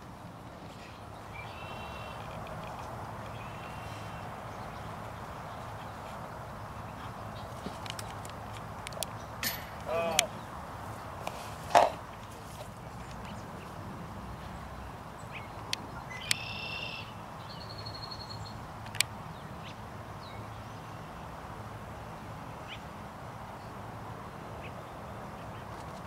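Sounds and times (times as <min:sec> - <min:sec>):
bird calling: 0:01.2 - 0:02.5, 0:15.3 - 0:18.2.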